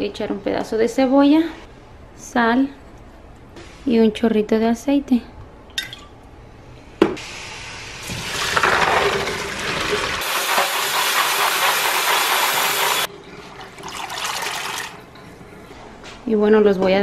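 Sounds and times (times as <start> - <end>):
faucet running: 8.0 - 15.2.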